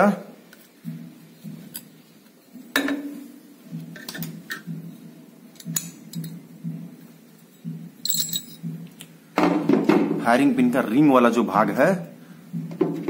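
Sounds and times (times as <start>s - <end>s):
metal clicks and clinks: 8.0s - 8.6s.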